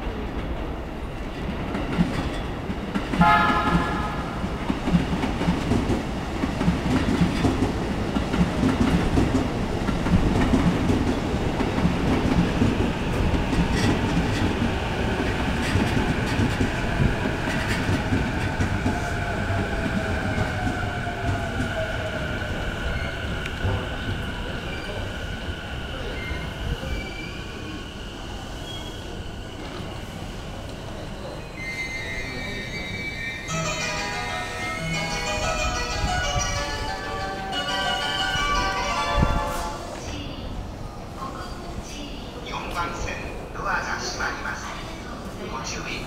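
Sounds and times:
train wheels rumbling on rails: 0.0s - 42.1s
train horn blast: 3.2s - 4.4s.

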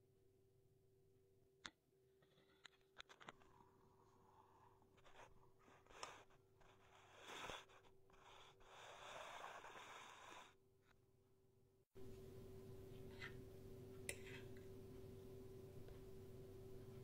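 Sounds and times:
steady low hum: 12.0s - 17.0s.

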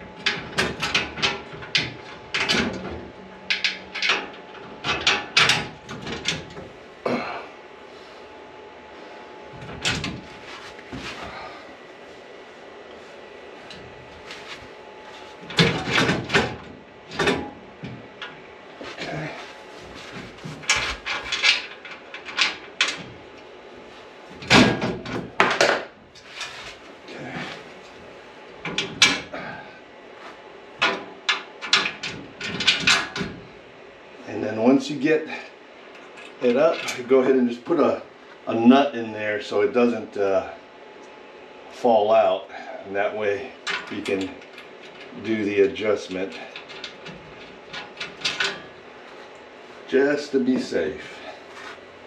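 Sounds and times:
metal rack pieces clunking and scraping: 0.1s - 6.7s, 9.5s - 11.6s, 13.6s - 23.4s, 24.3s - 28.0s, 28.6s - 29.6s, 30.8s - 33.5s, 36.1s - 37.1s, 43.6s - 51.8s.

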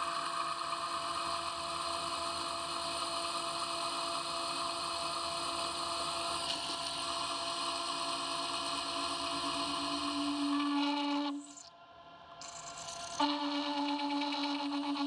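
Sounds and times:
metal lathe cutting steel whine: 9.4s - 11.6s, 13.0s - 15.0s.

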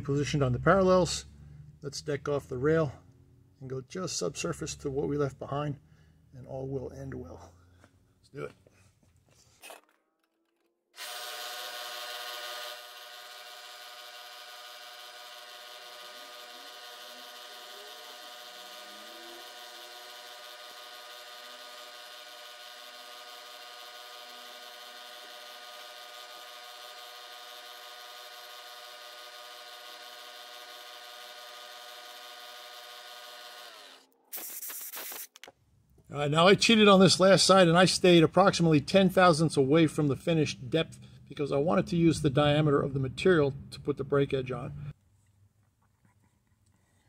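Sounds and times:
milling machine whine: 11.0s - 34.6s.

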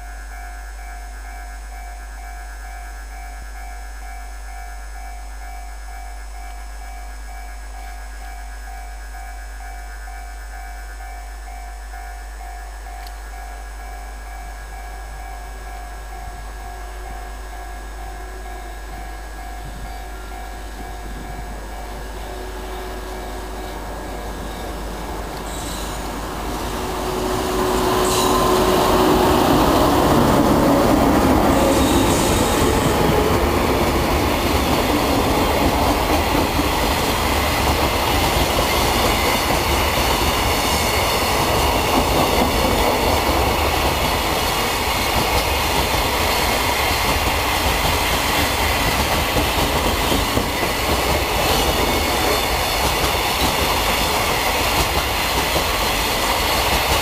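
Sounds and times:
electric locomotive passing: 0.0s - 57.0s
train wheels rumbling on rails: 0.0s - 57.0s.

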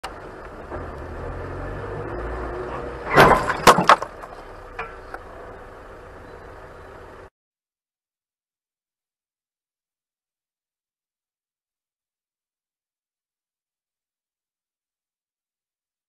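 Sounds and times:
low vehicle rumble: 0.0s - 7.3s
car crash impacts: 3.0s - 5.1s.

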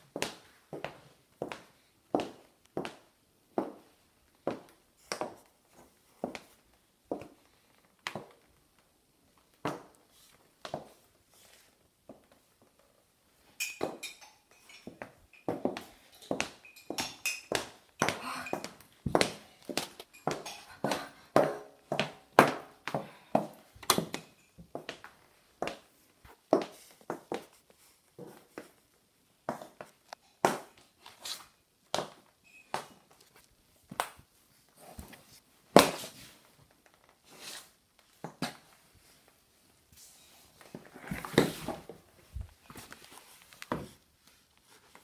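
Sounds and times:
heeled boots on wooden floor: 14.8s - 27.5s.

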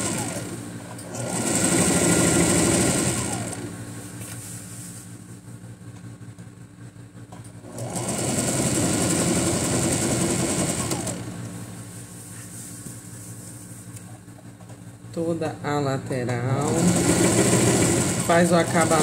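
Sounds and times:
sewing machine stitching: 0.0s - 3.7s, 7.6s - 11.4s, 16.6s - 19.0s.

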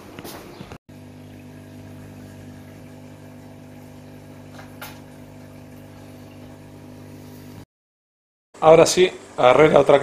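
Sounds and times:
aquarium pump humming: 0.9s - 7.7s.

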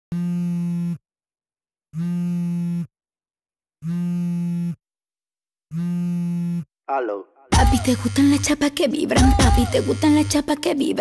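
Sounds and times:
phone buzzing on vibrate: 0.1s - 1.0s, 1.9s - 3.0s, 3.8s - 4.8s, 5.7s - 6.7s, 7.6s - 8.6s, 9.2s - 10.5s.

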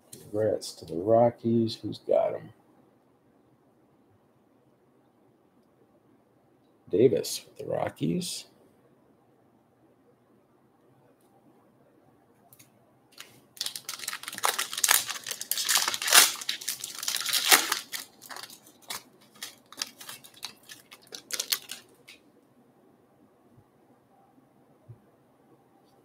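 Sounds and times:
foil wrapper tearing and crinkling: 13.2s - 22.2s.

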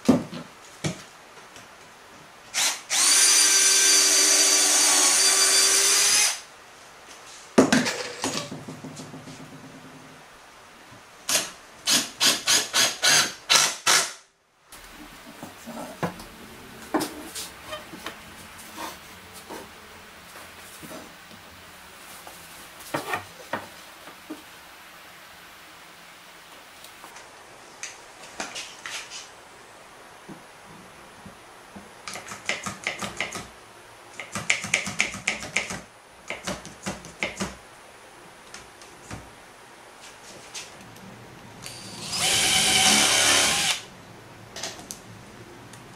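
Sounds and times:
knock: 7.6s - 9.9s.

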